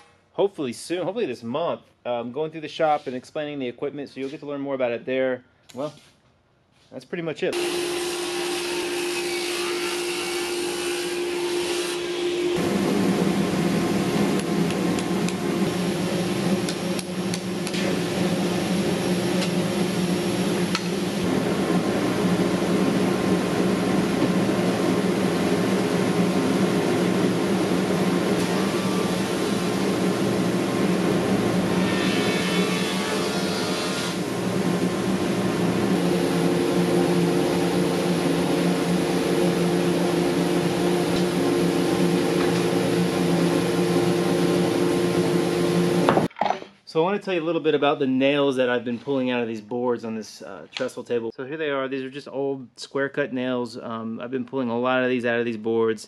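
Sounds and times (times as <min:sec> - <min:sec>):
planer and dust collector humming: 0:07.5 - 0:46.3.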